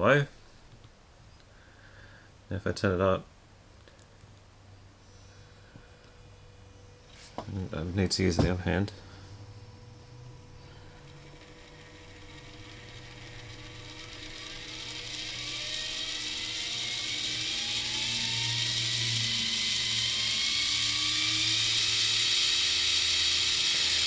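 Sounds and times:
small motor whirring: 9.1 - 24.0.

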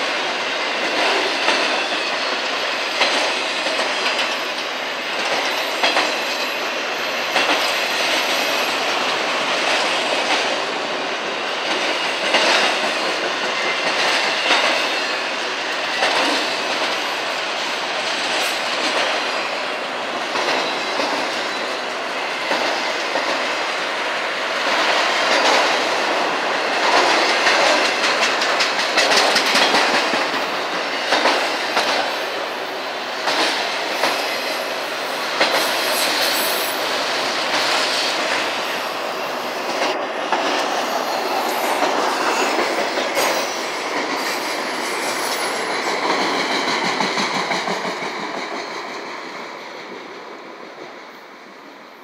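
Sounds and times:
freight train wheels rumbling: 0.0 - 52.0
wheels clicking over rail joints: 24.6 - 32.2.

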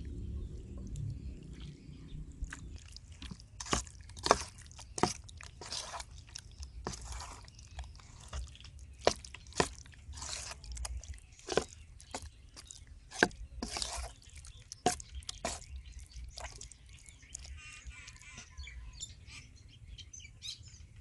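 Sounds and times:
low hum: 0.0 - 3.0
wet sticky batter squelches: 0.0 - 18.9.

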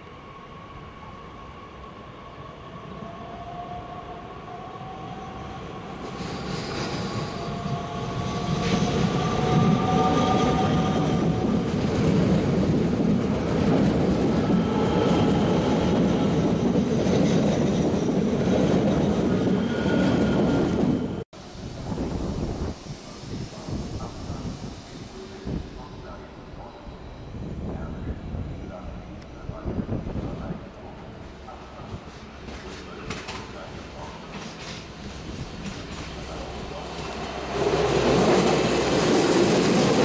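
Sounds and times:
wheels rumbling on rail: 29.4 - 40.0.

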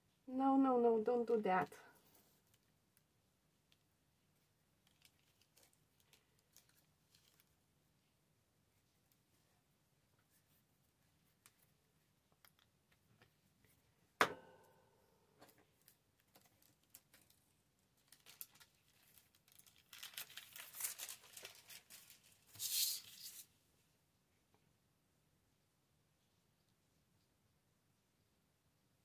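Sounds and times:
paper rustling and tearing: 18.0 - 23.5.

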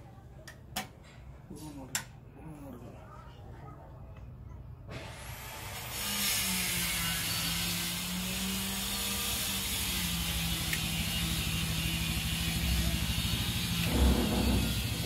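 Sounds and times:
low whirring hum: 6.9 - 15.0.

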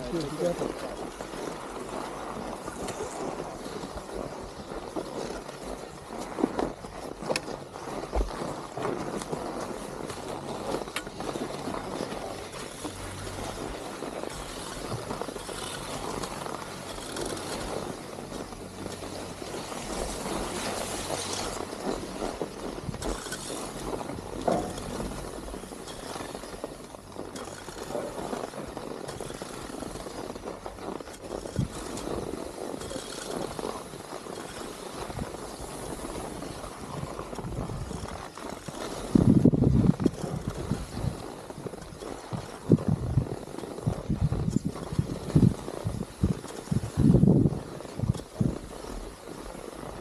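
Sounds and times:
skis scraping over snow: 0.0 - 50.0
wind on microphone: 0.0 - 50.0.

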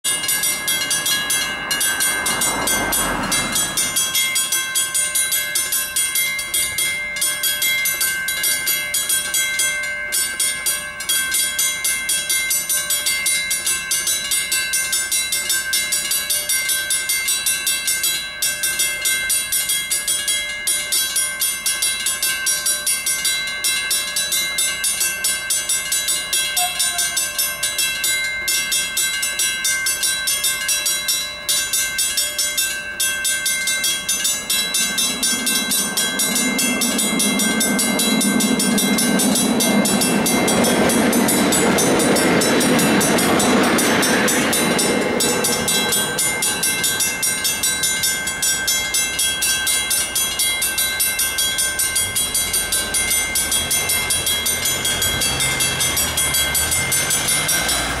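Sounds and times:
level-crossing bell ringing: 0.0 - 58.0
train passing: 0.0 - 58.0
car engines rumbling: 0.1 - 6.9, 33.5 - 58.0.

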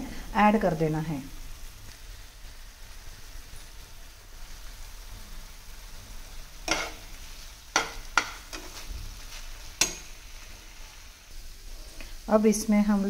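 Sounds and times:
food sizzling in a pan: 0.0 - 13.0
spatula scraping and knocking pan: 6.6 - 10.6.

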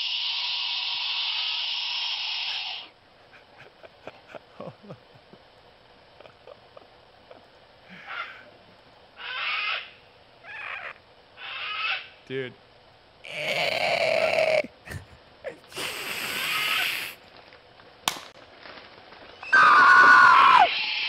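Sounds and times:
breathy laughter: 3.2 - 5.5, 6.1 - 8.5.

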